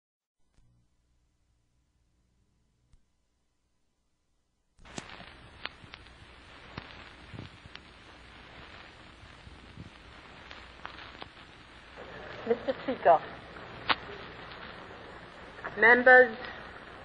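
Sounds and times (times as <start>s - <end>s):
old recording hiss: 4.7s - 17.0s
clicks and pops: 4.8s - 16.7s.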